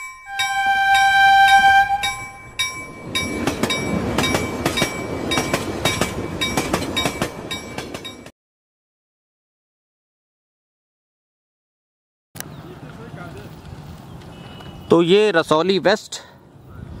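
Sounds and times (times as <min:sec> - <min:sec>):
bell ringing: 0:00.0 - 0:08.3
train wheels clacking on rails: 0:00.0 - 0:08.3
train horn blast: 0:00.3 - 0:02.4.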